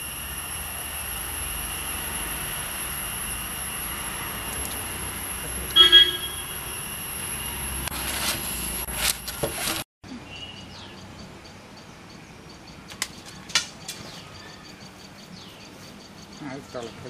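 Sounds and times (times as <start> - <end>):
outdoor background noise: 0.0 - 17.0
faint bird chirps: 10.1 - 17.0.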